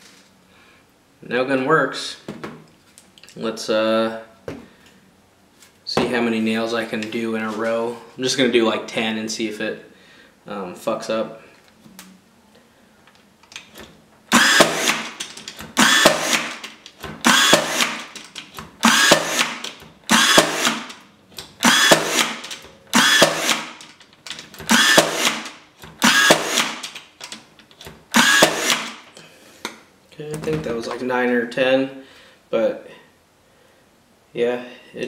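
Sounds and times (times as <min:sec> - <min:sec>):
nail gun firing into wood: 0:14.3 - 0:18.2, 0:18.8 - 0:21.0, 0:21.6 - 0:23.9, 0:24.6 - 0:27.0, 0:28.1 - 0:29.0.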